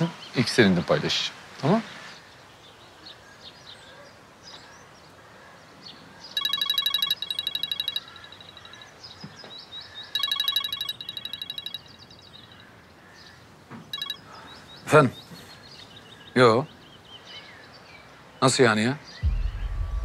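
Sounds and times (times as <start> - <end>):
bird chirps: 6.3 - 12.7, 13.8 - 17.6
mobile phone ringing: 6.4 - 8.9, 10.2 - 12.0, 13.9 - 14.3.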